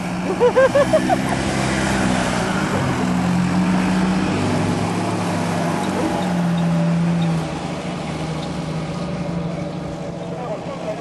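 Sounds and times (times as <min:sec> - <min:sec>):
car engine droning: 0:00.0 - 0:11.0
wind and tyre hiss: 0:00.0 - 0:11.0.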